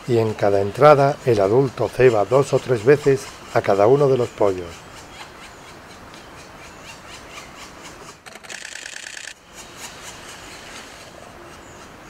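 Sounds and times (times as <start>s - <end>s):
nestlings buzzy chatter: 8.1s - 9.4s.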